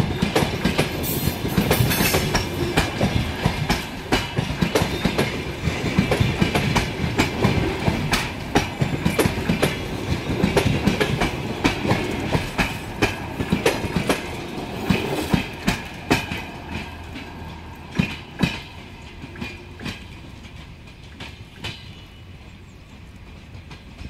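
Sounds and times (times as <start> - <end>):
passing train rumble: 0.0 - 24.0
train wheels clacking over rail joints: 0.0 - 24.0.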